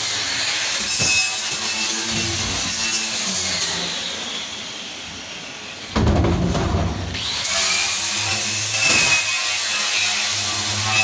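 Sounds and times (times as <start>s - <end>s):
wire brush grinder scraping metal: 0.0s - 4.8s, 7.0s - 11.0s.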